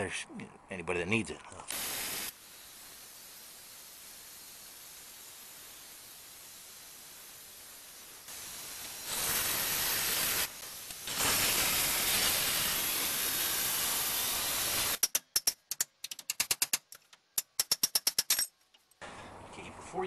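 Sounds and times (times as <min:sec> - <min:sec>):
grinder hissing on steel: 0:01.7 - 0:15.0.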